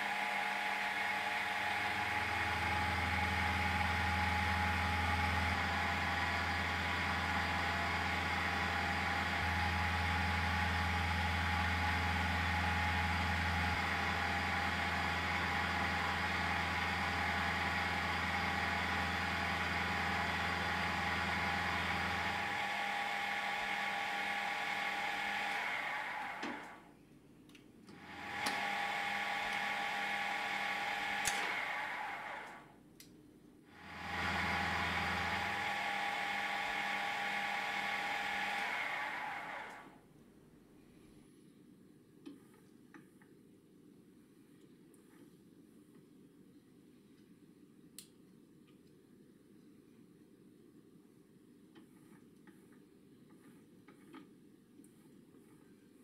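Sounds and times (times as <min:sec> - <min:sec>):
milling machine motor whine: 0:00.0 - 0:26.8, 0:27.9 - 0:32.7, 0:33.8 - 0:40.0.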